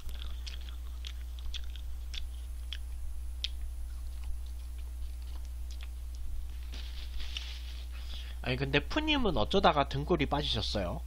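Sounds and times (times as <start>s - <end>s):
person chewing food: 0.0s - 8.3s
low hum: 0.0s - 11.0s.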